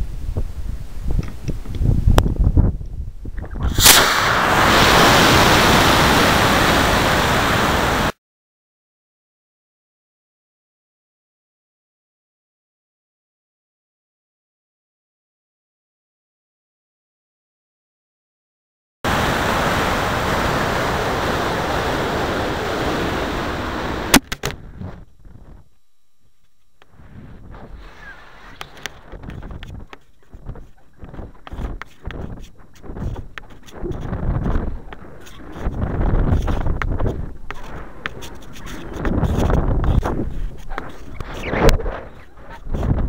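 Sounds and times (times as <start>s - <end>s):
wind buffeting microphone: 0.0s - 8.1s, 27.0s - 43.0s
rocket motor ignition crack: 3.6s - 6.0s, 24.1s - 24.6s
sharp bangs: 3.7s - 5.8s
rocket motor roaring: 3.7s - 7.4s.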